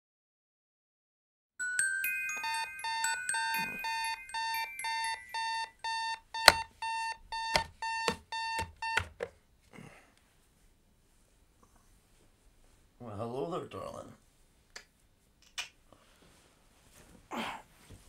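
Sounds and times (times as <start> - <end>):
alarm clock beeping: 1.6 - 9.2
hand slapping clock thumps: 6.4 - 6.7, 7.4 - 9.3.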